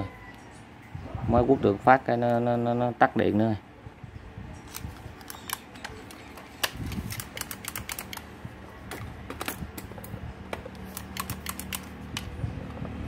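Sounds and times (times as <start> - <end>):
cordless drill clicks and clacks: 10.6 - 12.3.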